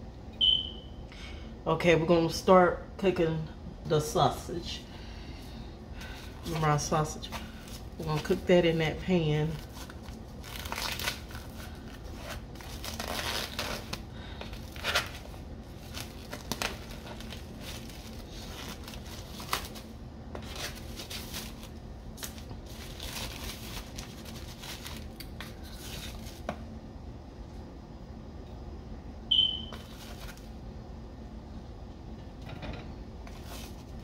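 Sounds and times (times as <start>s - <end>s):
plastic film rustling and crackling: 6.0s - 26.5s.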